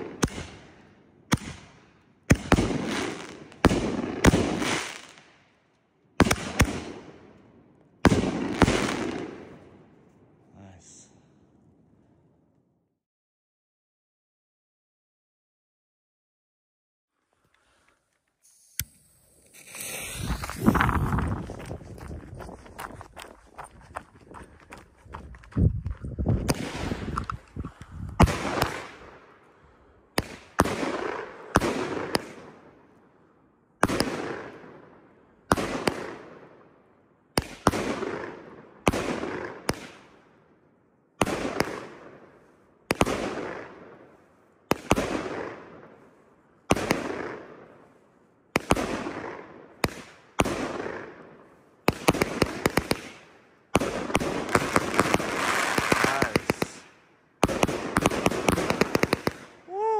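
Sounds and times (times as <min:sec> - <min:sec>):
fireworks bangs: 0:08.0 - 0:09.8, 0:19.5 - 0:22.5, 0:26.4 - 0:29.2, 0:51.9 - 0:59.9
fireworks crackling: 0:17.7 - 0:23.0, 0:51.9 - 0:59.9.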